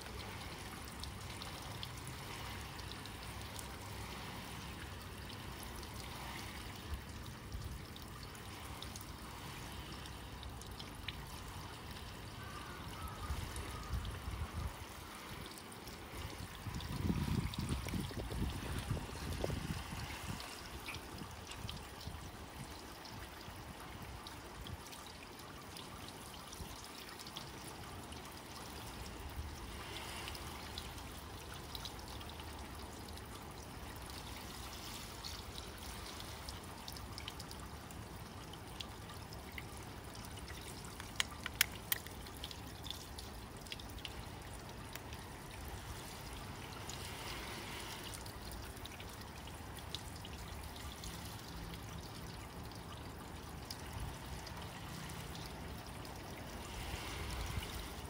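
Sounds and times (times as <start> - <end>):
hose water spraying on a car: 28.6 - 52.2, 53.2 - 58.0
sharp clicks: 41.0 - 42.2.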